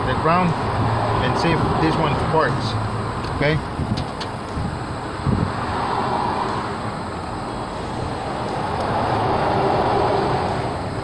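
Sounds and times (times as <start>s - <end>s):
rushing road traffic: 0.0s - 11.0s.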